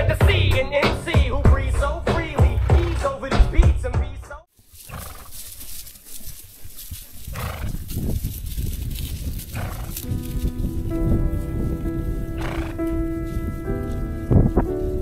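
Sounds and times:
horse calls: 2.3 - 3.3, 4.7 - 8.1, 9.4 - 10.1, 12.4 - 13.0
horses moving rumble: 2.4 - 3.5, 4.6 - 15.0
music with held chords: 10.0 - 15.0.

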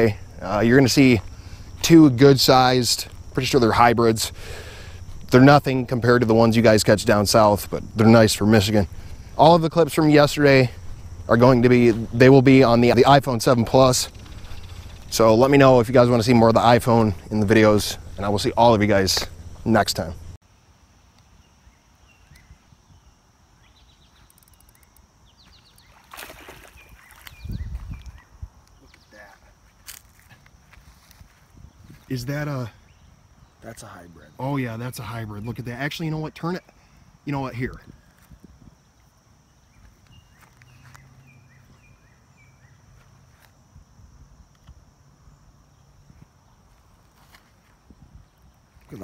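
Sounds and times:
birds chirping: 0.0 - 20.4, 21.3 - 29.6, 38.9 - 43.1
steady low hum: 0.0 - 20.4
faint clicks: 24.2 - 25.1
fish splashing: 25.8 - 27.3.

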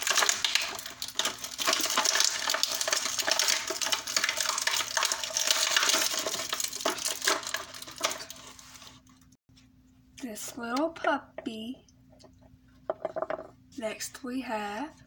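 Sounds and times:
plastic pieces knocking together: 0.0 - 8.3
plastic packaging crinkling: 0.0 - 9.1.

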